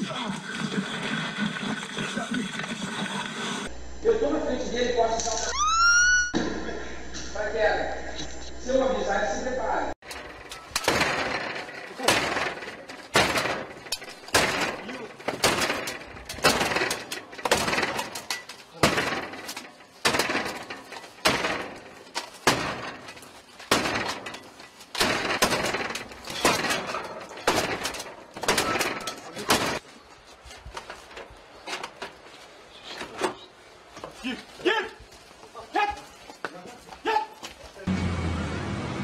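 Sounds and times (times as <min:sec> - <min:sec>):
heavy blows crashing against door: 0:10.0 - 0:29.8.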